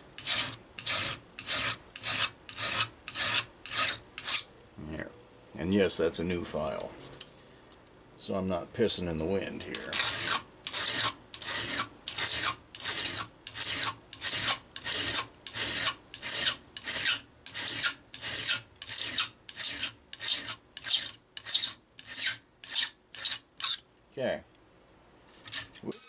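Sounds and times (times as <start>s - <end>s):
file rasping on metal: 0.2s - 4.5s, 9.8s - 23.8s.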